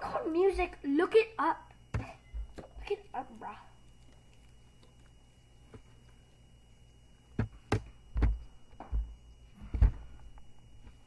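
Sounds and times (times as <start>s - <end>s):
dull thumps: 7.4s - 10.2s.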